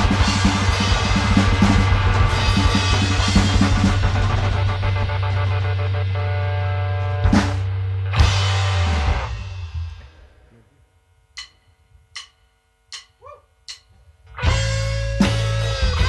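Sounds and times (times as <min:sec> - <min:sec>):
rock band playing: 0:00.0 - 0:10.2, 0:14.4 - 0:16.0
drumstick clicks: 0:11.4 - 0:14.0.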